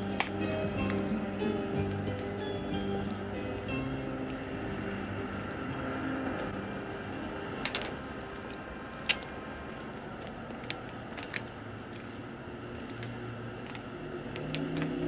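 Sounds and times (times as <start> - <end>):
music: 0.0 - 9.4
steady hiss: 0.0 - 15.0.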